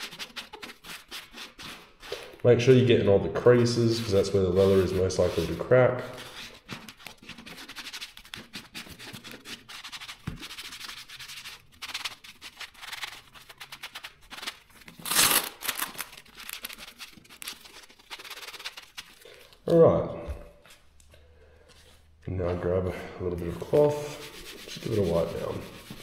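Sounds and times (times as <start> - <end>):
sponge scuffing leather glove: 0.0 - 7.0.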